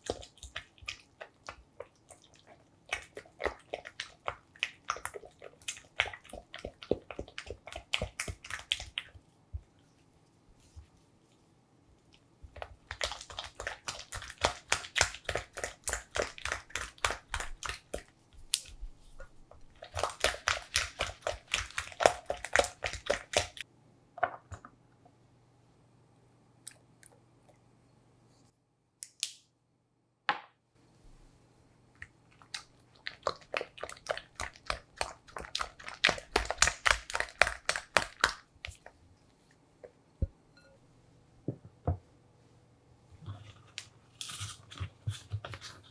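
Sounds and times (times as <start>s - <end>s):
spatula stirring batter: 0.0s - 11.3s, 12.4s - 23.6s, 32.1s - 40.0s.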